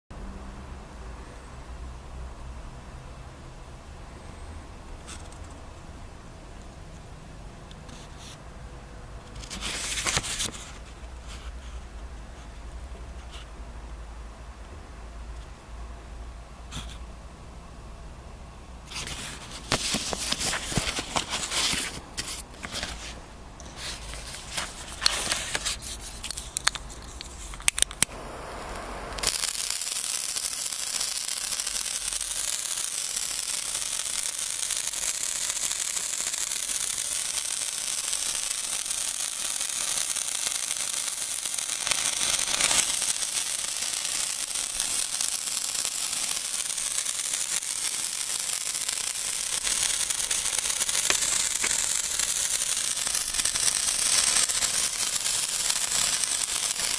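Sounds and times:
sparkler hissing and crackling: 9.4s - 10.8s, 18.9s - 56.9s
paper package rustling: 9.4s - 10.9s, 18.9s - 28.0s, 41.5s - 56.9s.

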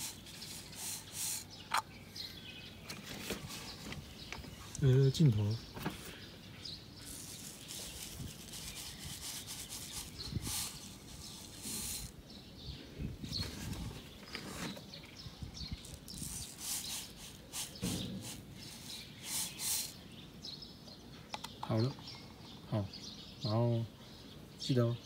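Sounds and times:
soil granules poured and scraped: 7.0s - 12.1s, 15.8s - 19.9s.

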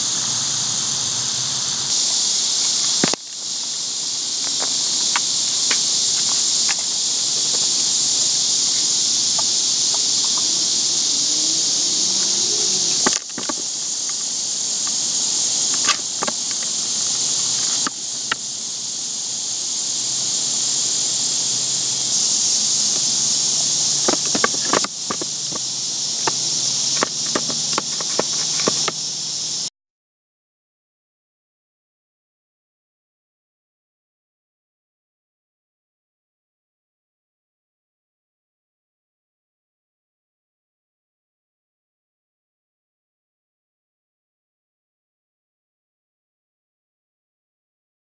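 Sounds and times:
high-pitched insect chorus: 0.0s - 29.7s.

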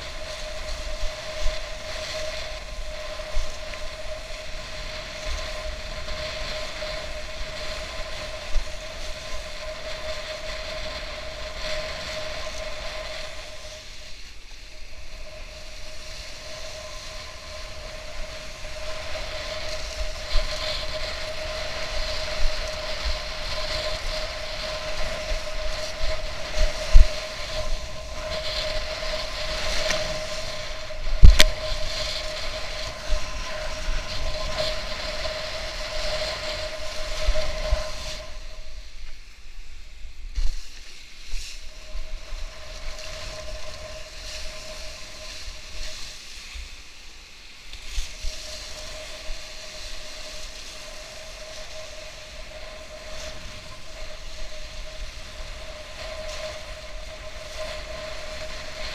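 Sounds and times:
wind on microphone: 0.0s - 58.9s.

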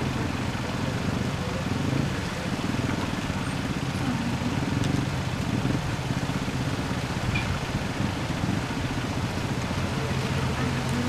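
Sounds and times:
van engine idling: 0.0s - 11.0s.

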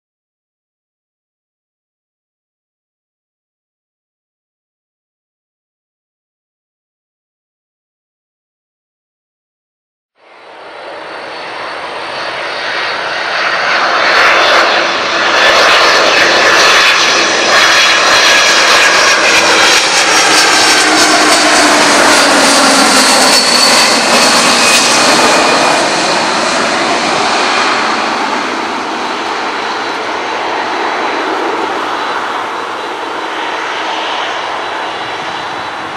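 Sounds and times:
jet airliner engines whining: 10.2s - 35.9s.

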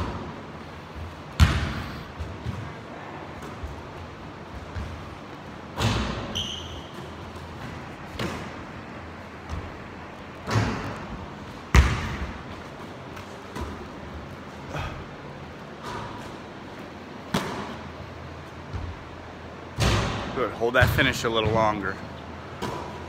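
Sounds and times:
basketball bouncing on gym floor: 0.0s - 14.0s, 17.2s - 18.0s, 18.6s - 19.1s, 19.8s - 23.0s
basketball hitting hoop: 1.3s - 2.7s, 5.8s - 8.6s, 10.4s - 12.5s, 17.3s - 17.8s, 19.8s - 21.6s, 22.6s - 23.0s.

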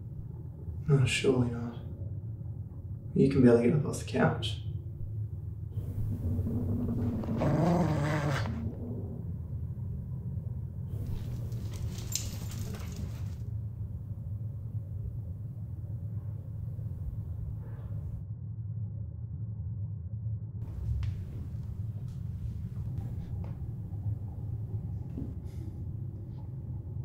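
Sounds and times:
steady low hum: 0.0s - 27.0s
dog whining: 5.8s - 9.3s.

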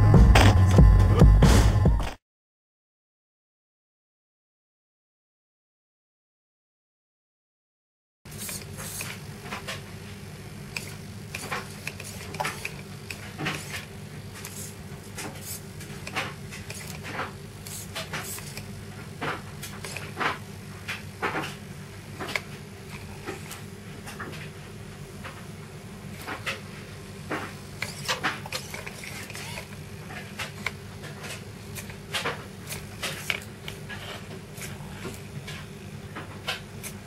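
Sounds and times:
steady low hum: 8.3s - 37.0s.

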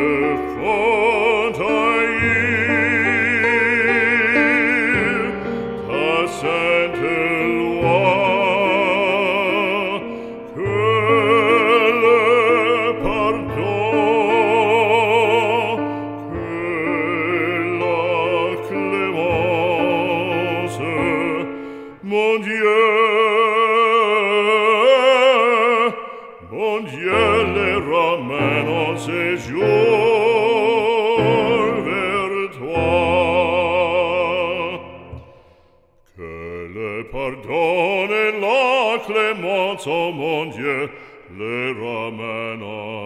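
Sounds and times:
sustained accompaniment: 0.0s - 21.8s
operatic voice singing: 0.0s - 35.4s, 36.1s - 43.0s.

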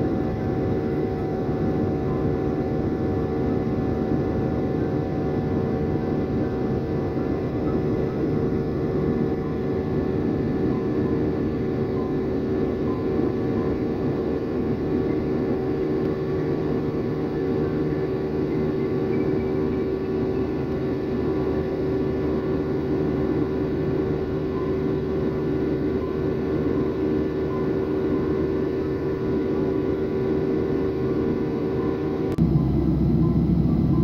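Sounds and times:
jet engine cabin drone: 0.0s - 34.0s
steady mid-range hum: 0.0s - 34.0s.

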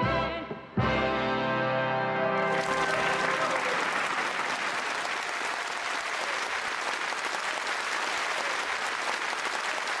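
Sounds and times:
studio audience applauding: 2.4s - 10.0s.

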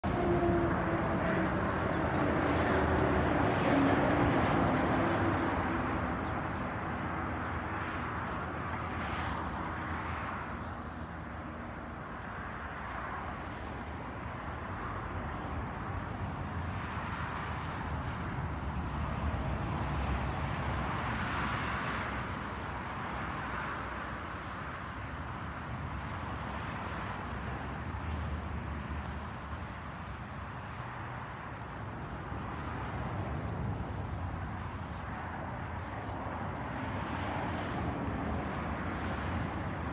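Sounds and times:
outdoor rushing noise: 7.8s - 39.9s
motor vehicle passing: 26.8s - 39.9s.

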